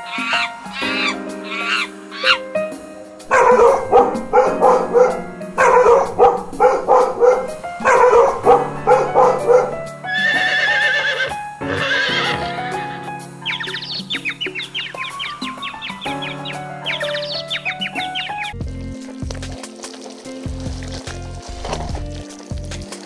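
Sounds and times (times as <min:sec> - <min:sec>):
horse whinnying: 0:00.0 - 0:02.4, 0:10.0 - 0:13.1
background music: 0:00.0 - 0:23.0
dog barking: 0:03.3 - 0:09.8.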